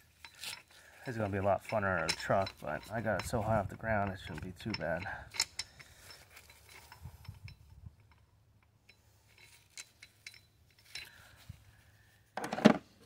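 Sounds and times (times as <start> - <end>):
metallic clicks from crimper: 4.0 - 11.2.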